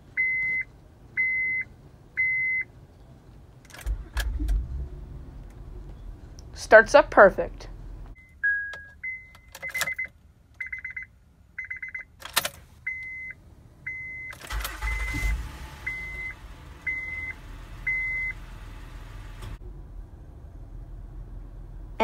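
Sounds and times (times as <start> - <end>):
dashboard warning chime beeping: 0.2 - 2.7, 8.2 - 12.2, 12.8 - 18.4
car engine starting and idling: 3.5 - 8.2, 12.2 - 22.0
ignition key clicks: 8.7 - 10.1, 12.2 - 12.6.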